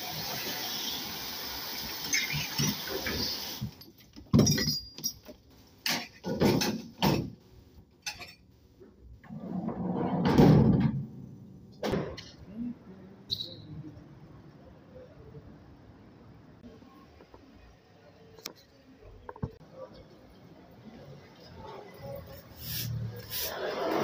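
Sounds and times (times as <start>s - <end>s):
cutlery and rack clattering: 2.6s - 7.3s, 8.0s - 8.5s
spray hissing onto cutlery rack: 22.6s - 23.9s.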